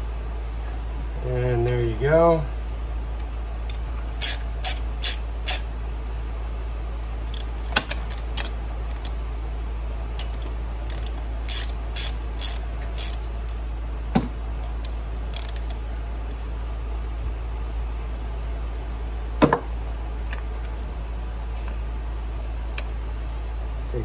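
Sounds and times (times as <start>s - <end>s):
steady low hum: 0.0s - 24.0s
hand ratchet clicking: 3.7s - 5.7s, 7.3s - 9.1s, 10.2s - 13.3s, 14.8s - 15.8s.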